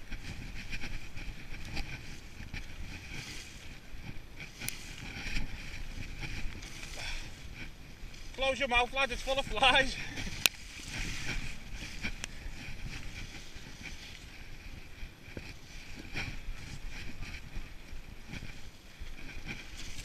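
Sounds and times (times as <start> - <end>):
bike clicks and rattles: 0.0 - 20.0
tyres rolling on gravel: 0.0 - 20.0
wind rumble on microphone: 0.0 - 20.0.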